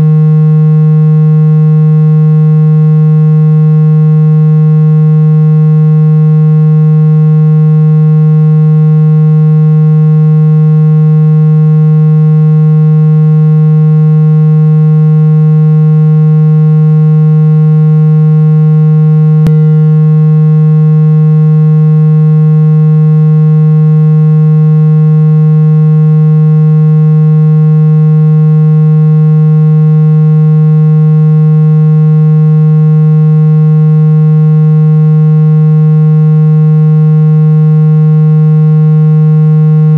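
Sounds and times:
low buzzing tone: 0.0 - 39.9.

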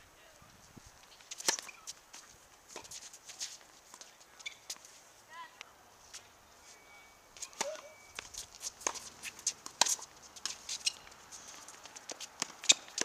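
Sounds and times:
quick footsteps on court: 0.6 - 5.0, 7.4 - 13.0
tennis ball hits and bounces: 1.3 - 4.8, 7.4 - 13.0.

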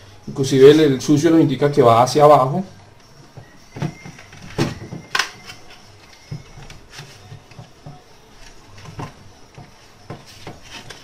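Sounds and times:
plastic and metal parts clicking: 3.9 - 7.7.

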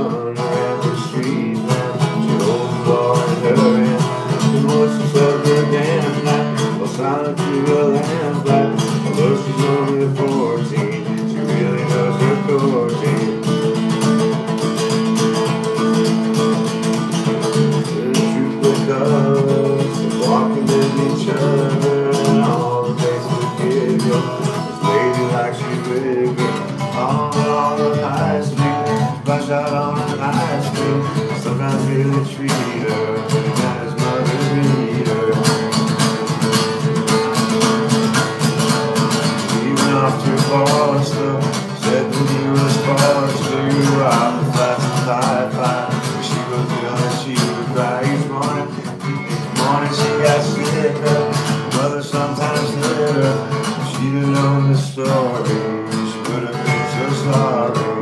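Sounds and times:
acoustic guitar strummed: 0.0 - 58.0.

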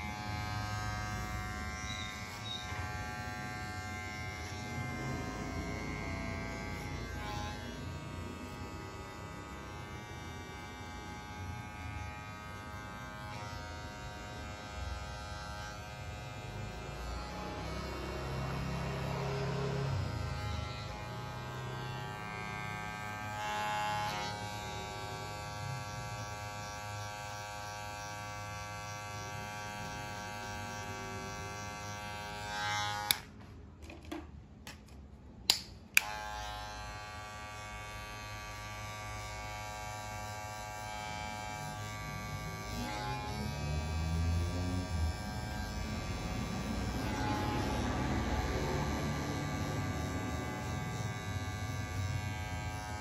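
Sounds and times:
hair clipper buzzing: 0.0 - 33.4, 35.4 - 53.0.

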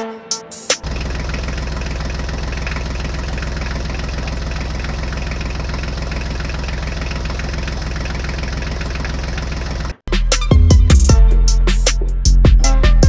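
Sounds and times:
tractor engine idling: 0.6 - 10.0.

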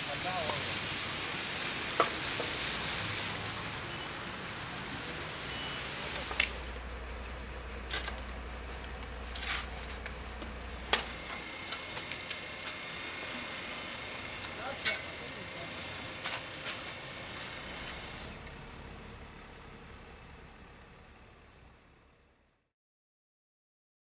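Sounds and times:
rain on wet pavement: 0.0 - 9.3, 10.0 - 14.8, 15.6 - 18.4
shovel scraping a drain: 7.9 - 8.2, 9.2 - 10.1, 14.4 - 18.2.

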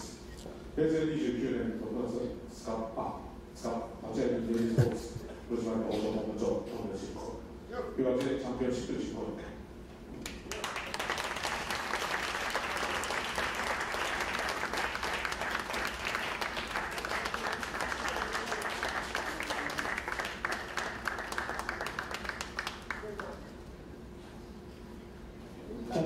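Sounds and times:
audience applauding: 10.2 - 23.5.

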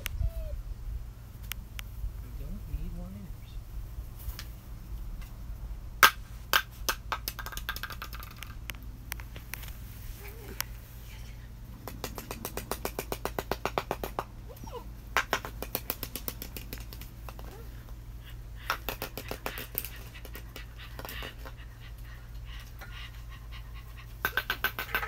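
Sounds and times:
puppy sounds: 0.0 - 0.7, 10.1 - 13.4, 14.4 - 25.0.

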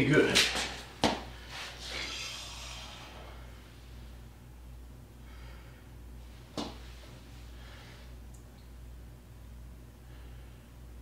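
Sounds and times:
steady low hum: 0.0 - 11.0
soft breathing: 5.2 - 6.4, 7.0 - 8.2, 10.0 - 10.8.

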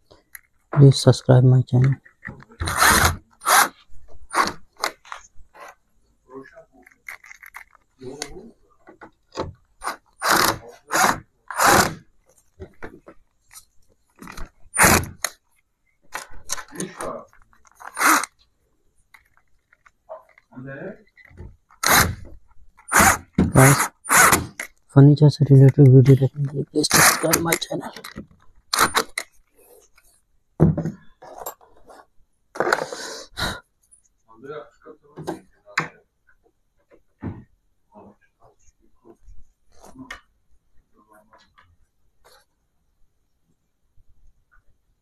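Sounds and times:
cordless drill driving screws: 2.6 - 5.0, 9.8 - 12.0, 14.8 - 15.4, 17.8 - 18.4, 21.8 - 24.7, 26.9 - 27.4, 28.7 - 29.2.

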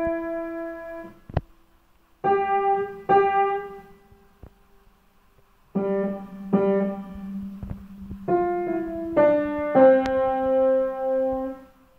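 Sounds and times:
boogie piano chords: 0.0 - 1.3, 2.2 - 4.1, 5.7 - 11.8.

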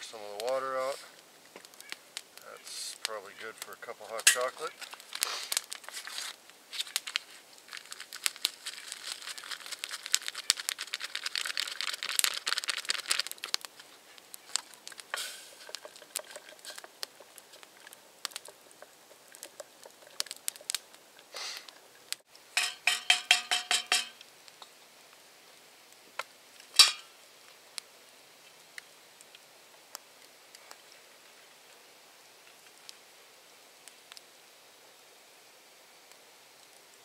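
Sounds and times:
paper packet crinkling and tearing: 4.2 - 18.7
spoon clinking against metal pot: 22.6 - 24.2, 26.8 - 27.1.

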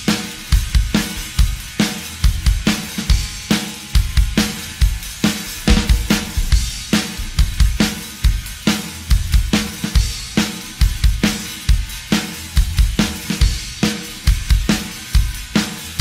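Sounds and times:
cymbals and hi-hat wash: 0.0 - 16.0
rock drum kit beat: 0.0 - 16.0
bass drum hits: 2.3 - 7.8.

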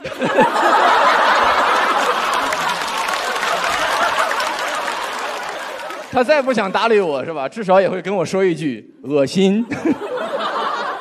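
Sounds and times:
audience laughing: 0.0 - 6.8, 9.6 - 11.0.

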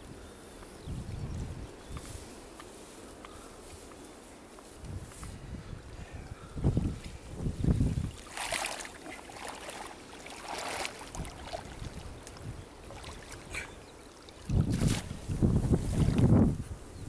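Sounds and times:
wind buffeting microphone: 0.0 - 2.6, 4.8 - 17.0
water sloshing and splashing: 7.7 - 16.3.

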